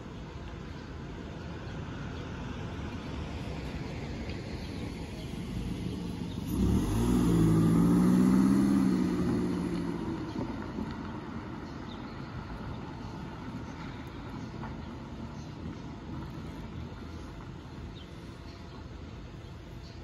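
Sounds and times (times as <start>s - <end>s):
background traffic rumble: 0.0s - 20.0s
passing car engine: 2.4s - 18.0s.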